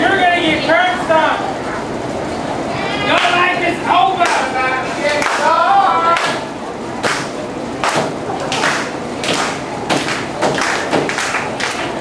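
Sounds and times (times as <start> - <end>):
sharp knocks: 9.2 - 11.4.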